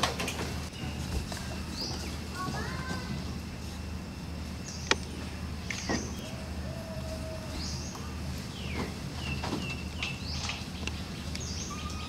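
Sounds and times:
steady low hum: 0.0s - 12.0s
high chirping calls: 0.7s - 2.4s, 7.4s - 12.0s.

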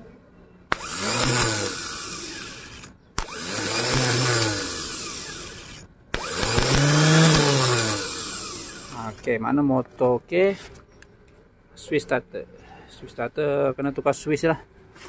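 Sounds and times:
starter motor whirring: 0.7s - 9.3s.

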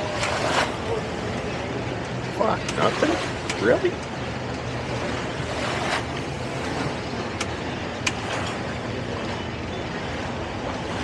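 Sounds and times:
outboard engine idling: 0.0s - 11.0s.

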